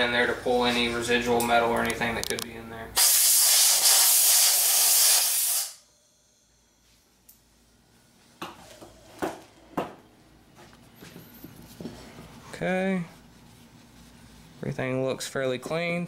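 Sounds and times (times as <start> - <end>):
compressed air hiss: 3.0 - 5.8.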